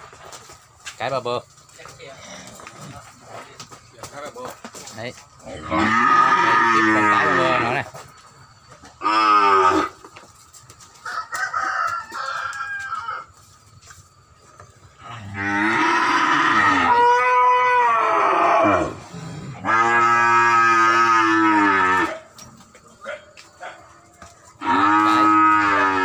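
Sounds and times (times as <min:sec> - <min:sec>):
cattle mooing: 0:05.5 - 0:07.8, 0:15.0 - 0:22.2, 0:24.6 - 0:26.0.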